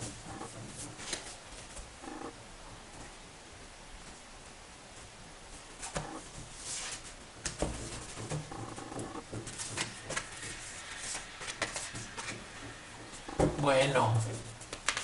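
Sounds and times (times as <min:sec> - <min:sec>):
cards shuffled and dealt: 0:09.3 - 0:12.8, 0:14.6 - 0:15.0.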